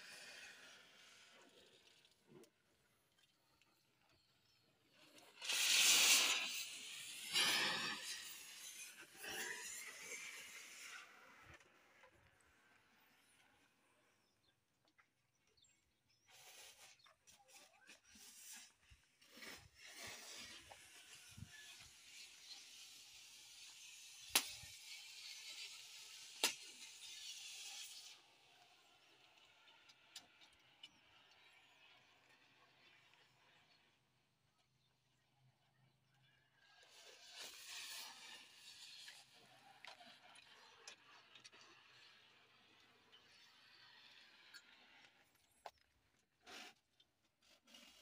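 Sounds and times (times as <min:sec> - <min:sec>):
loud hissing: 0:05.4 - 0:10.9.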